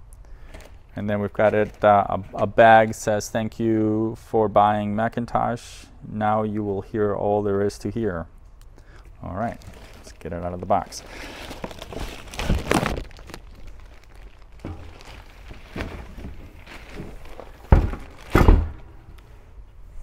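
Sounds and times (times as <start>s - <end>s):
plastic bag rustling: 9.4s - 18.9s
loud thunks: 14.6s - 19.1s
cardboard scraping: 14.8s - 18.8s.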